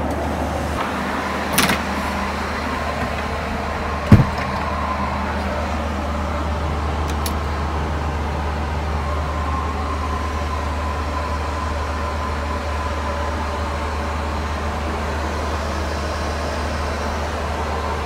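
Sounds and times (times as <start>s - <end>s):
airliner engine and airflow drone: 0.0s - 18.0s
thin steady whine: 0.0s - 18.0s.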